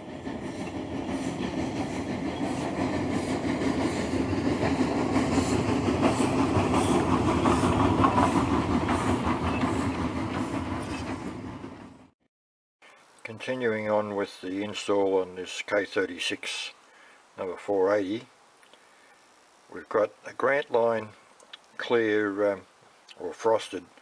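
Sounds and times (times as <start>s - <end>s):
train running on rails: 0.0s - 12.2s.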